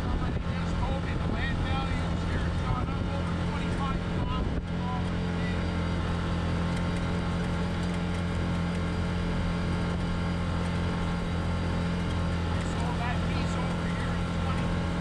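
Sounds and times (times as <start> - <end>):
wind noise: 0.0 - 4.8
vehicle engine low drone: 0.0 - 15.0.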